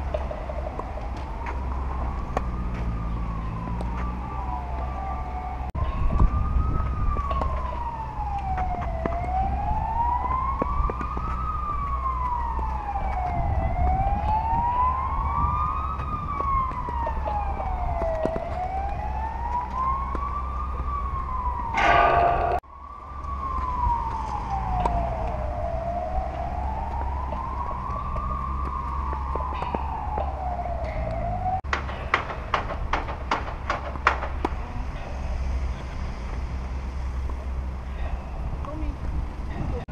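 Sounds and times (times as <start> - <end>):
siren wailing: 0.0 - 31.6
loud rush of noise: 21.8 - 22.6.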